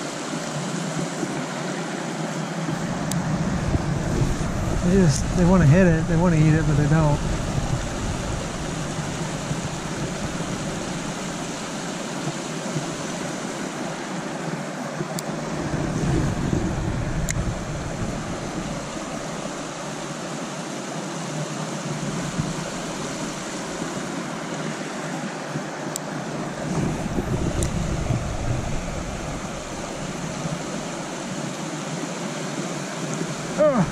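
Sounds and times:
creek rushing over riffle: 0:02.7 - 0:12.2.

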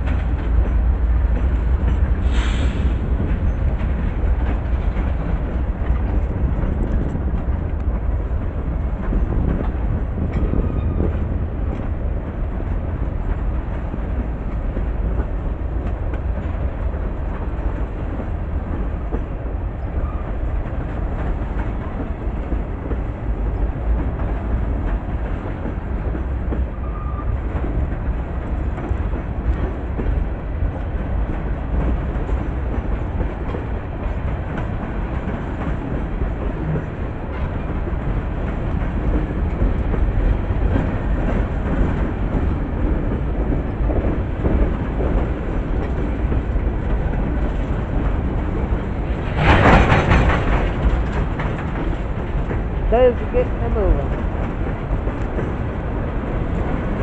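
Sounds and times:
freight train rumble: 0:00.0 - 0:57.0.

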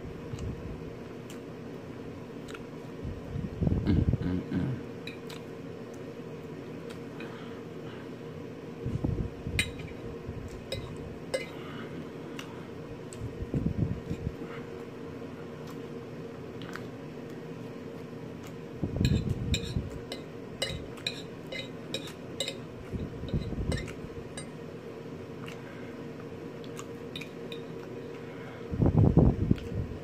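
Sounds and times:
steady hum: 0:00.0 - 0:30.0
chewing: 0:16.5 - 0:17.4, 0:18.4 - 0:18.6, 0:25.4 - 0:28.2
fork scraping ceramic plate: 0:19.0 - 0:22.6, 0:23.3 - 0:24.5.

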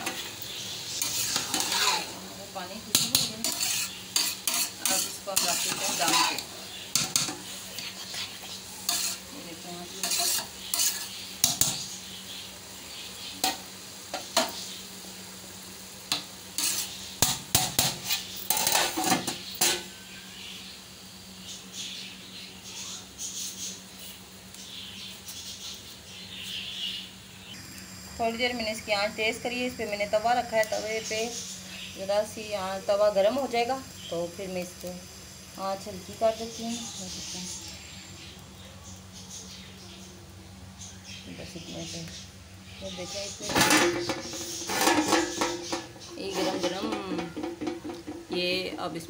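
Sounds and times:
metal spoon scraping pot: 0:01.0 - 0:02.1, 0:02.9 - 0:09.3, 0:10.0 - 0:11.8, 0:16.6 - 0:17.0, 0:17.8 - 0:19.9, 0:43.2 - 0:48.3.

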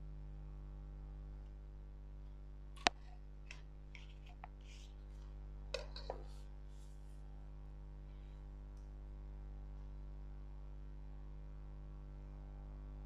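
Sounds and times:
steady low hum: 0:00.0 - 0:13.0
ruler rustling on paper: 0:03.5 - 0:07.2.

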